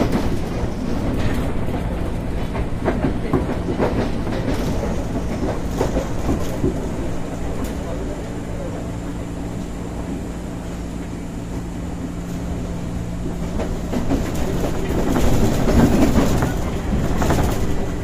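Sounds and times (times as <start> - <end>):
train motor hum: 0.0 - 18.0
wheels rumbling: 0.0 - 18.0
wheels clicking over rail joints: 13.5 - 18.0.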